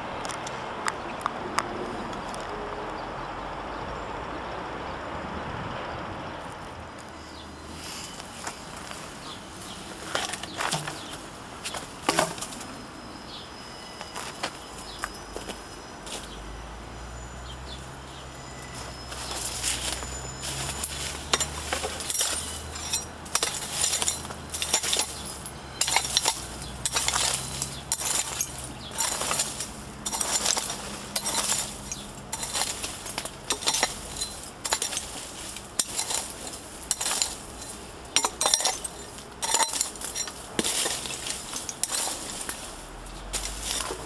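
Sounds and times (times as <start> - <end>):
shovel scraping soil and stones: 7.8 - 12.6, 18.7 - 44.0.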